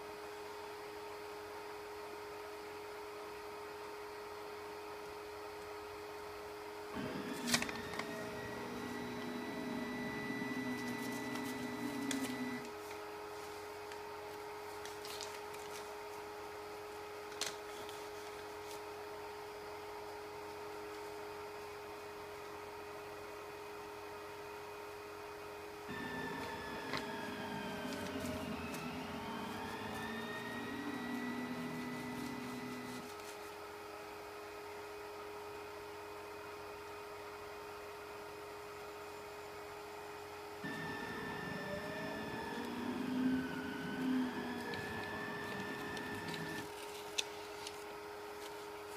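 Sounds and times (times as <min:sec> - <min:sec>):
steady hum: 0:06.1 - 0:21.3, 0:25.7 - 0:33.6, 0:40.6 - 0:48.9
stepper motors whining: 0:07.0 - 0:12.7, 0:25.9 - 0:33.1, 0:40.6 - 0:47.8
paper rustling: 0:07.1 - 0:09.8, 0:10.4 - 0:16.3, 0:17.2 - 0:19.0, 0:26.4 - 0:33.6, 0:44.6 - 0:48.9.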